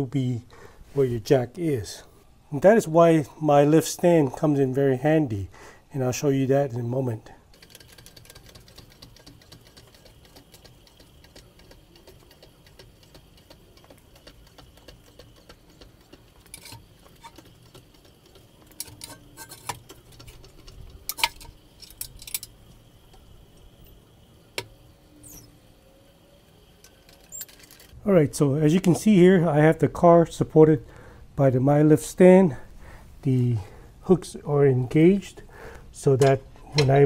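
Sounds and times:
faint ticking: 7.4 - 25.9
metal clicks and clanks: 7.5 - 23.7, 26.8 - 28.0.

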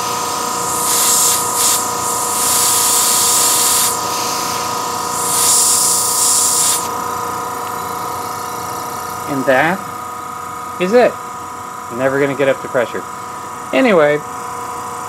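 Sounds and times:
air hissing from hose: 0.0 - 6.9
air compressor humming: 0.0 - 15.0.

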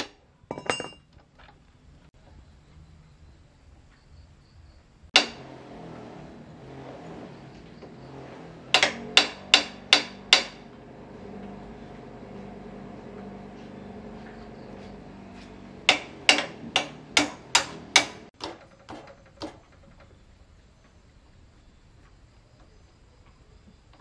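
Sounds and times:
metal-on-metal hammer strikes: 5.2 - 5.6, 8.7 - 10.6, 15.4 - 19.0.

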